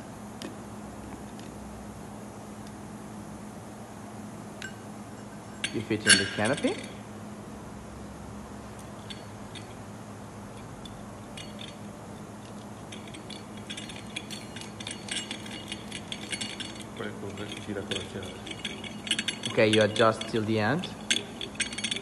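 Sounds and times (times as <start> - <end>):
steady low hum: 0.0 - 22.0
metallic clinks and rattles: 4.6 - 7.1, 8.8 - 22.0.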